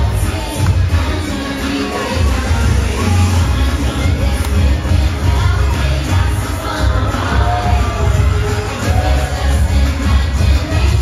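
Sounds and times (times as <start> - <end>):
upbeat parade music: 0.0 - 11.0
heavy pulsing bass beat: 2.2 - 11.0.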